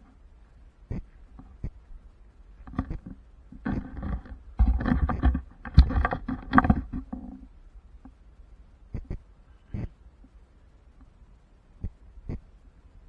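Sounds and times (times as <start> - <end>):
camera handling rubbing and knocking: 2.6 - 7.4.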